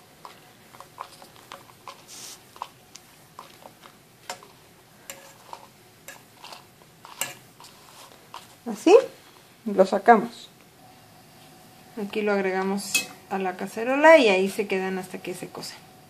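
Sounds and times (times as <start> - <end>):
metal fork scraping a dry skillet: 5.0 - 8.5.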